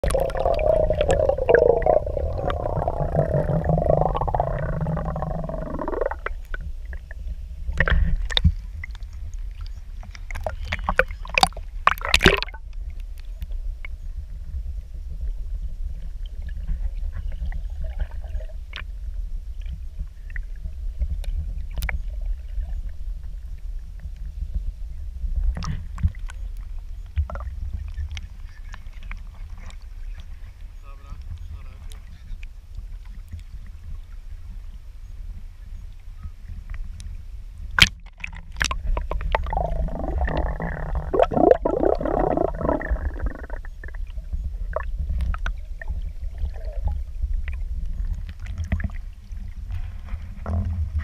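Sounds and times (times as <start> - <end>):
wavering pitched tone: 0.0 - 6.4
muffled underwater rumble: 0.0 - 51.0
underwater clicks and knocks: 7.7 - 9.0, 9.6 - 14.0, 37.7 - 46.6.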